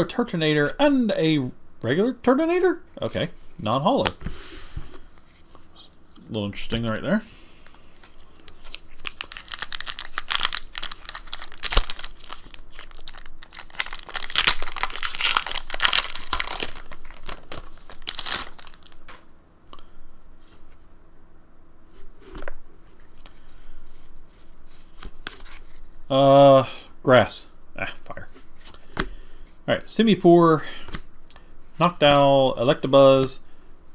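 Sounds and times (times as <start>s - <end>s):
cards rustling and clicking: 7.6s - 19.2s, 24.7s - 25.9s
foil wrapper tearing and crinkling: 8.0s - 19.1s.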